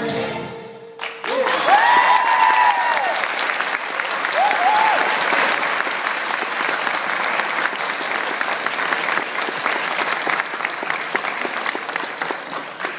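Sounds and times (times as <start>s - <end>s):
audience applauding: 1.0s - 12.9s.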